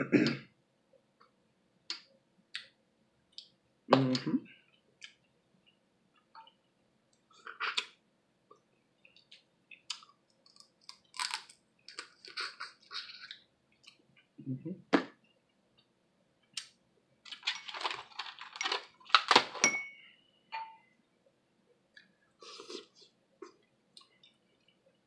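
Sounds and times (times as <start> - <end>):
crab shell cracking: 9.9 - 12.2.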